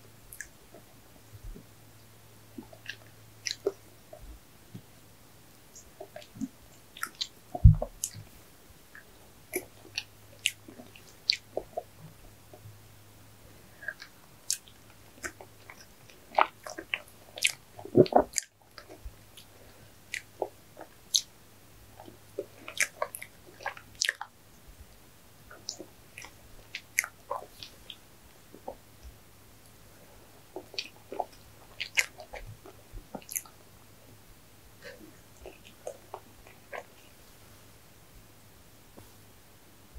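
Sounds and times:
wet mouth clicks and chewing: 0:00.3 - 0:00.9, 0:02.6 - 0:04.2, 0:05.8 - 0:08.3, 0:08.9 - 0:12.6, 0:13.8 - 0:24.4, 0:25.5 - 0:29.8, 0:30.4 - 0:33.6, 0:34.8 - 0:37.1.

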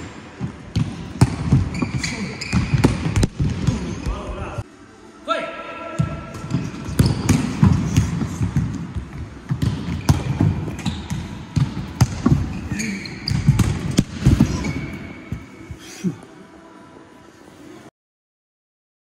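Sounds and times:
shoe squeaks: 0:01.5 - 0:03.0, 0:09.9 - 0:11.5, 0:12.3 - 0:15.9
ball kicks and thuds: 0:06.0 - 0:12.6, 0:13.3 - 0:15.4.

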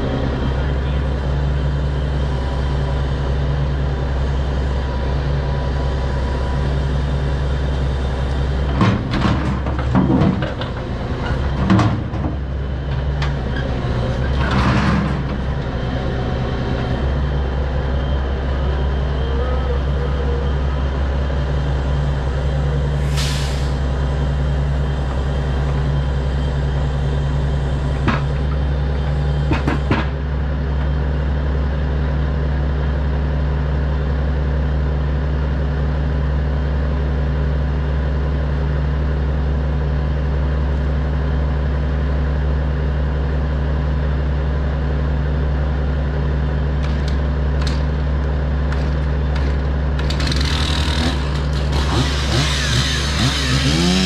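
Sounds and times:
truck engine running: 0:00.0 - 0:54.0
chainsaw revving: 0:49.4 - 0:54.0.

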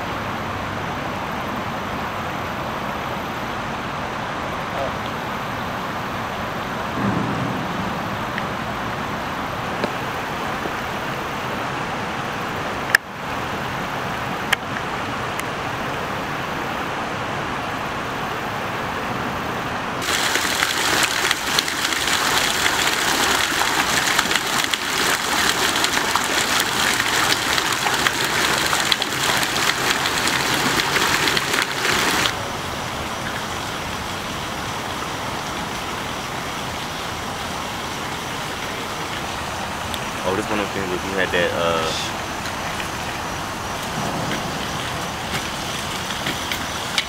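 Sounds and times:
low hum of noise: 0:00.0 - 0:20.1
fountain water splashing into basin: 0:20.0 - 0:47.0.

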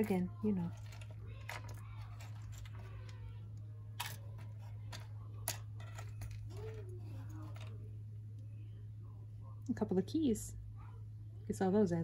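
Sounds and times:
steady low hum: 0:00.0 - 0:12.0
jewelry pieces clicking and clinking: 0:04.0 - 0:07.8.

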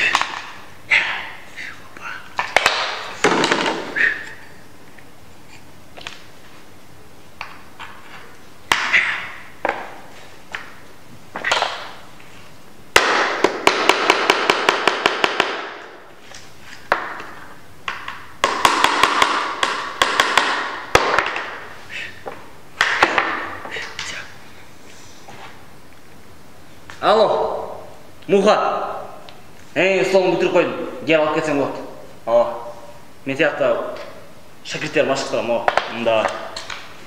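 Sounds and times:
wooden boards knocking on floor: 0:02.4 - 0:04.0, 0:13.0 - 0:15.8, 0:17.9 - 0:21.6, 0:22.3 - 0:23.6.

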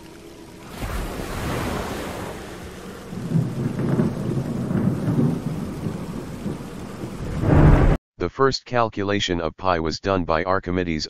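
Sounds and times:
steady rain: 0:00.0 - 0:08.0
thunder rolling: 0:00.8 - 0:08.0.

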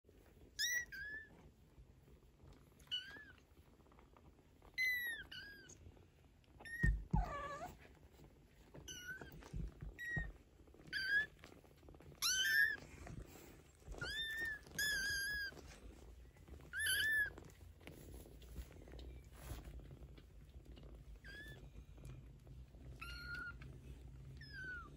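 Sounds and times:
soft low thumps: 0:06.6 - 0:07.8.

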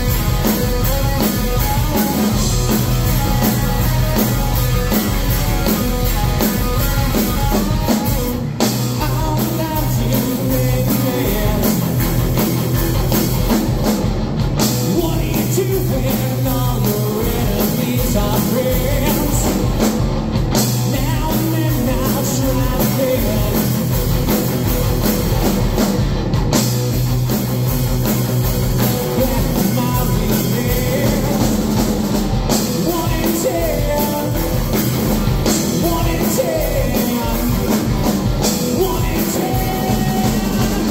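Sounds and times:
bass guitar: 0:00.0 - 0:40.9
distorted electric guitar: 0:00.0 - 0:40.9
drum kit: 0:00.0 - 0:40.9
lead singer vocals: 0:08.9 - 0:12.0, 0:14.8 - 0:19.7, 0:20.8 - 0:23.8, 0:29.1 - 0:31.6, 0:32.7 - 0:34.6, 0:35.6 - 0:37.9, 0:38.5 - 0:40.9.

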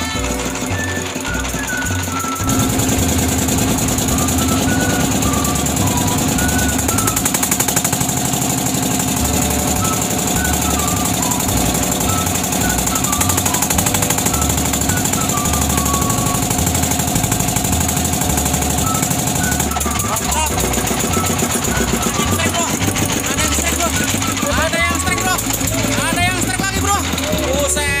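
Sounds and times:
boat engine chugging: 0:00.0 - 0:28.0.

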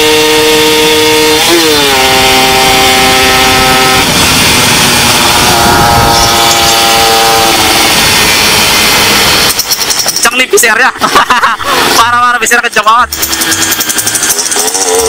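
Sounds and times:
two-stroke motorcycle engine revving: 0:00.0 - 0:10.2.

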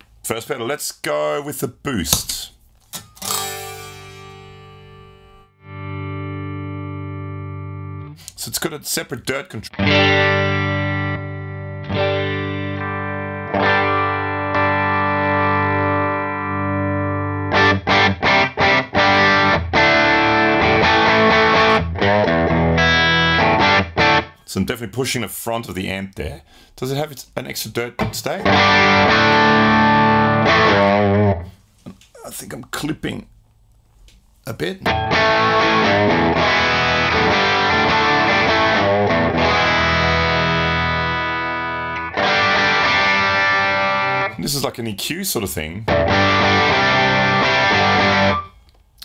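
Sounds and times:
overdriven electric guitar chords: 0:03.2 - 0:08.2, 0:09.7 - 0:24.4, 0:28.4 - 0:31.5, 0:34.8 - 0:44.4, 0:45.9 - 0:48.5.

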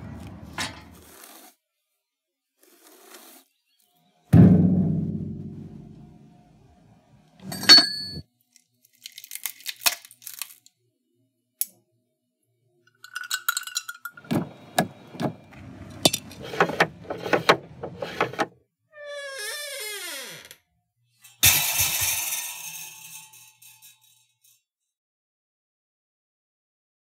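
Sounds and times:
low ringing thump: 0:04.4 - 0:06.1
sharp ringing clink: 0:07.5 - 0:08.2
ice clinking in an enamel mug: 0:13.0 - 0:14.2.

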